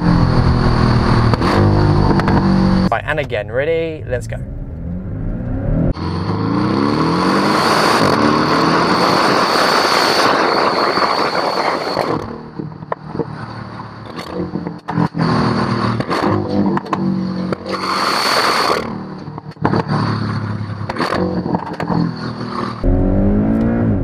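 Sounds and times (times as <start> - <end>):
car engine accelerating hard: 0.0 - 3.0, 4.3 - 24.0
exhaust pops: 0.7 - 3.5.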